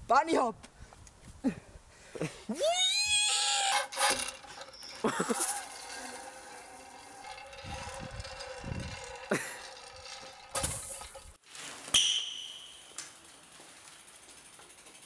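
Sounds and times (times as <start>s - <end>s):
bike freewheel ticking: 3.6s - 11.4s, 12.6s - 15.0s.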